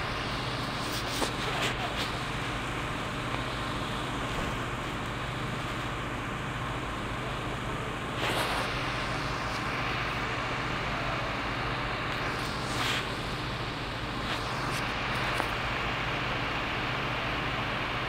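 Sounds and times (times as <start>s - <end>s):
rush of hissing noise: 7.1s - 18.0s.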